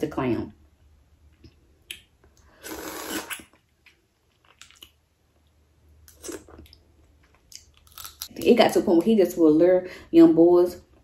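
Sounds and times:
soft chewing: 3.3s - 8.3s.

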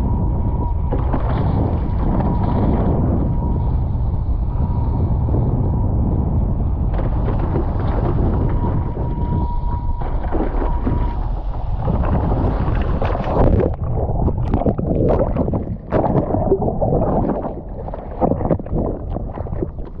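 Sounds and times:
underwater splashing and churning: 0.0s - 5.6s, 6.4s - 20.0s
wind buffeting microphone: 0.0s - 20.0s
water rushing: 10.1s - 20.0s.

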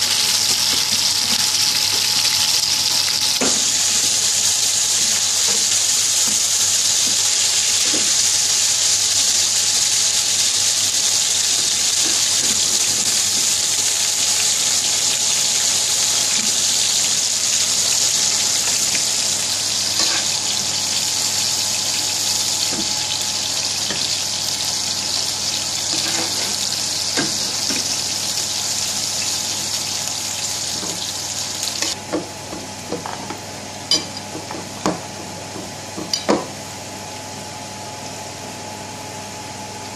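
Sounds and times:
burgers sizzling in frying pan: 0.0s - 32.0s.

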